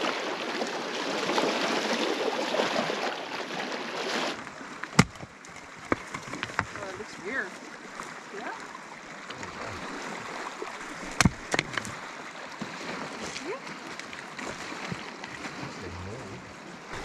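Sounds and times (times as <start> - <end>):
water lapping on stony shore: 0.0 - 17.0
axe splitting a log: 4.8 - 6.8, 11.0 - 11.9.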